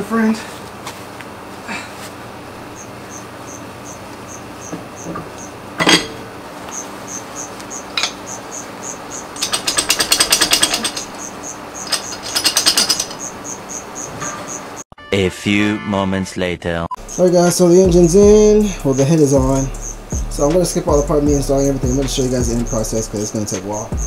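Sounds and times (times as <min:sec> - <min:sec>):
crickets chirping: 0:01.4 - 0:14.8, 0:17.0 - 0:24.0
metallic clunk: 0:05.1 - 0:06.3
ratchet wrench clicking: 0:09.1 - 0:13.3.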